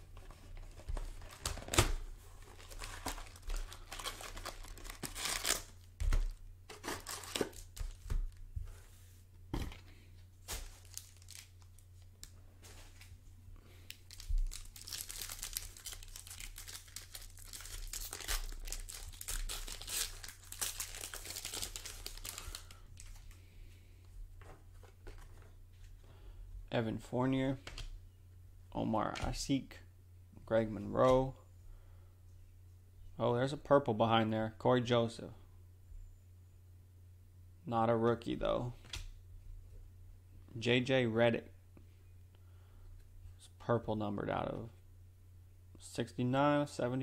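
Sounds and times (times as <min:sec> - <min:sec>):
cardboard and plastic tearing: 0:00.6 - 0:08.0, 0:14.1 - 0:22.6.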